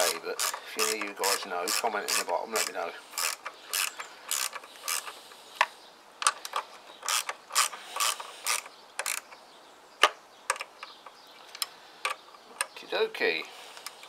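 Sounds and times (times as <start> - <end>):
ratchet wrench clicking: 0.0 - 5.1, 7.0 - 9.2.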